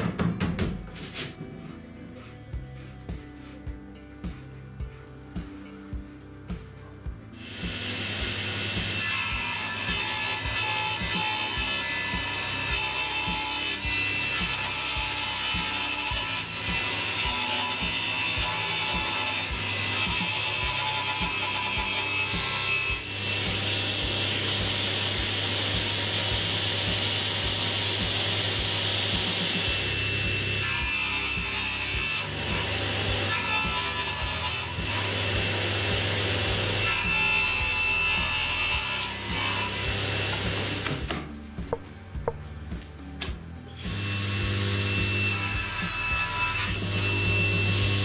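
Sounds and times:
table saw motor hum: 7.4s - 9.1s, 23.0s - 30.7s
saw blade rasping through board: 7.4s - 41.1s, 43.9s - 48.0s.

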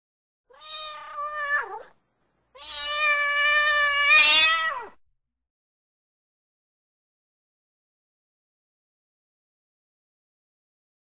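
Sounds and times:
cat meowing: 0.5s - 5.0s.

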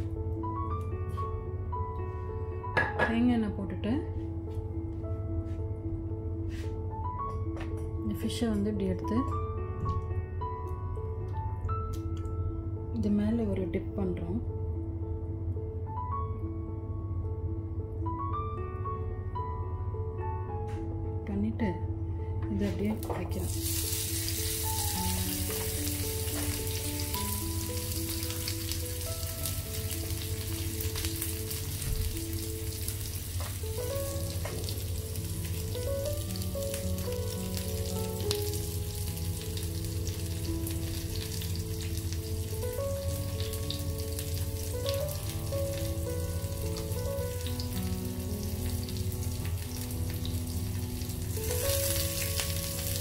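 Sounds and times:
quiet background music: 0.0s - 53.0s
fish sizzling on a grill pan: 23.4s - 53.0s.

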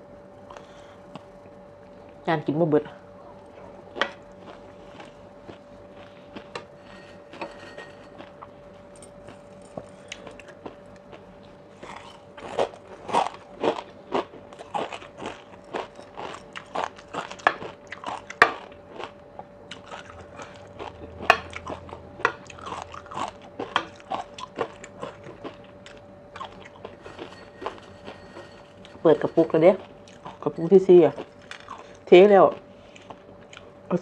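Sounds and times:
crisp crunching: 3.9s - 21.0s
wet chewing: 9.2s - 33.7s.

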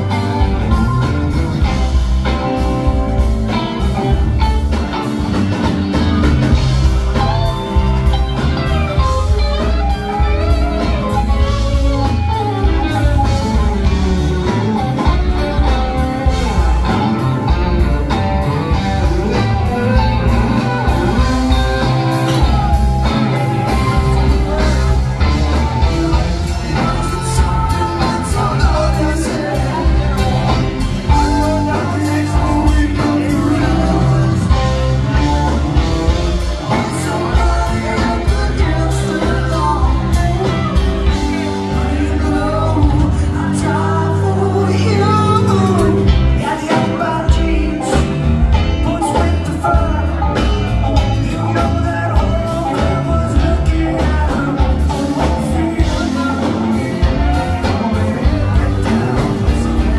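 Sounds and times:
person singing: 0.0s - 59.9s
rock band playing: 0.0s - 59.9s.

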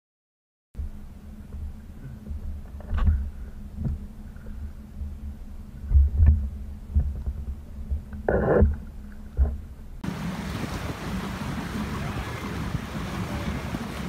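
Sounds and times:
churning water: 0.8s - 14.0s
wind: 0.8s - 14.0s.

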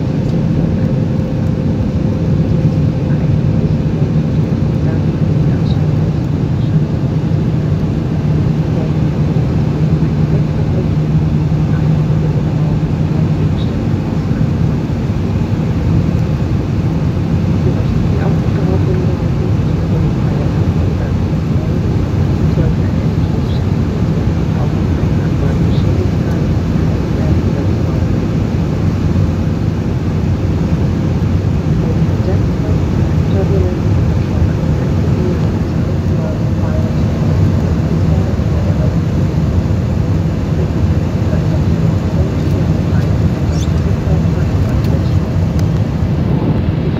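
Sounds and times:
airplane cabin engine rumble: 0.0s - 46.9s.

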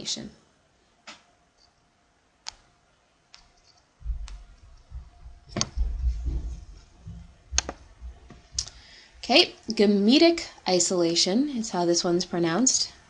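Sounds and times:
uneven low rumble: 4.0s - 8.8s.

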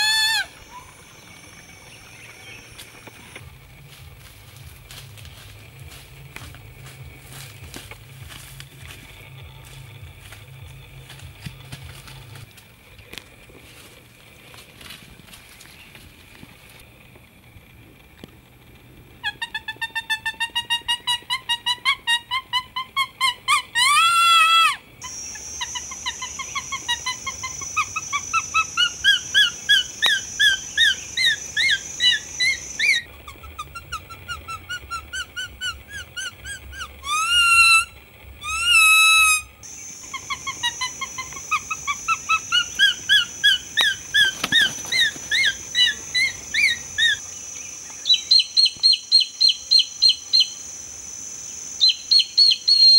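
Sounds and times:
leaf whistle wavering calls: 0.0s - 6.0s, 19.2s - 52.9s
leaf whistle piping notes: 0.0s - 6.2s, 19.2s - 52.9s
steady high buzz: 0.0s - 23.5s, 24.6s - 52.9s.

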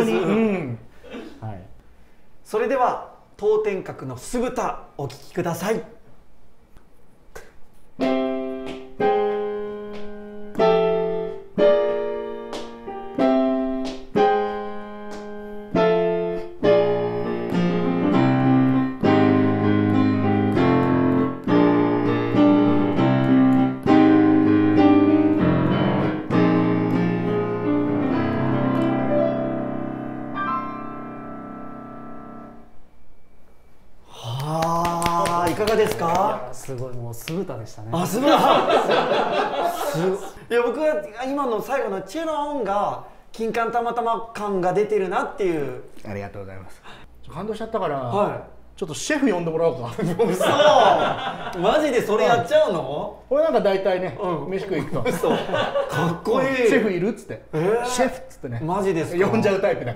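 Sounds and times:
solo piano piece: 8.0s - 32.8s.

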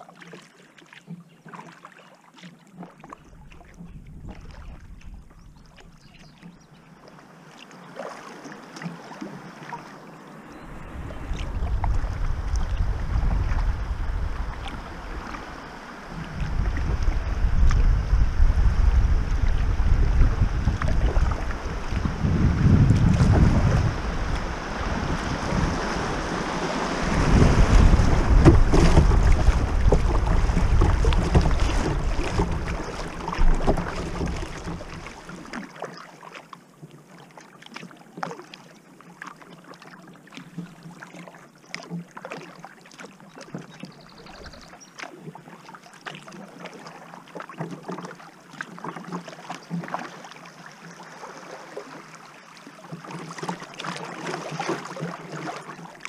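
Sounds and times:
paddle splashes and drips: 0.0s - 56.0s
water lapping hull: 0.0s - 56.0s
wind rumble on microphone: 3.4s - 6.1s, 10.5s - 35.4s, 44.0s - 44.7s.

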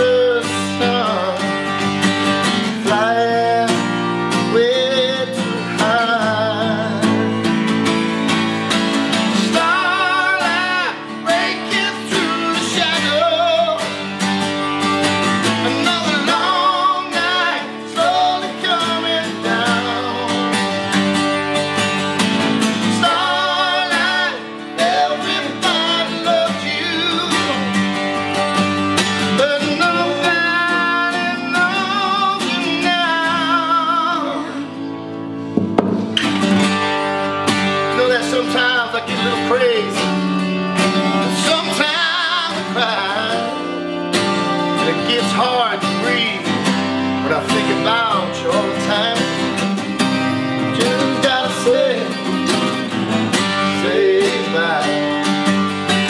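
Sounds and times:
man singing: 0.0s - 1.8s, 2.5s - 7.7s, 9.2s - 14.2s, 15.4s - 21.0s, 22.6s - 28.0s, 29.2s - 35.0s, 37.8s - 40.3s, 41.0s - 44.0s, 44.6s - 49.8s, 50.4s - 52.7s, 53.5s - 55.4s
acoustic guitars strummed: 0.0s - 56.0s.

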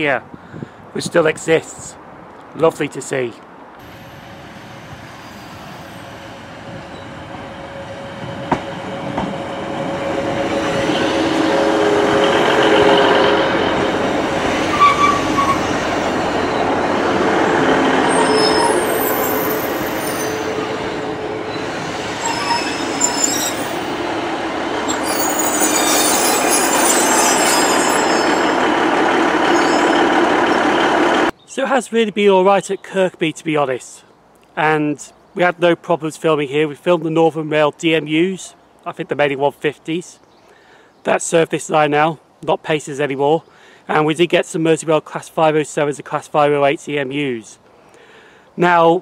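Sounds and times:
high-pitched brake squeals: 3.8s - 7.2s, 14.7s - 16.7s, 18.0s - 24.0s, 24.9s - 30.7s
train engine and wheels on rails: 3.8s - 31.4s.

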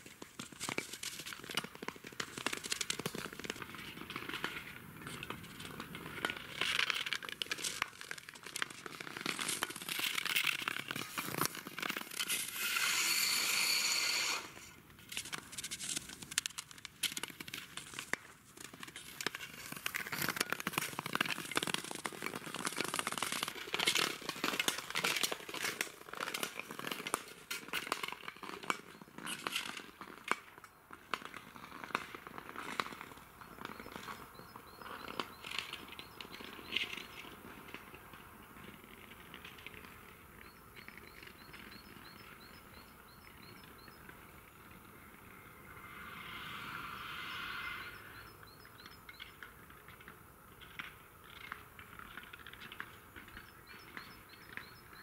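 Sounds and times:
ice crackling and ticking: 0.0s - 55.0s
small bird chirping: 33.4s - 37.4s, 40.3s - 49.5s, 52.5s - 55.0s.

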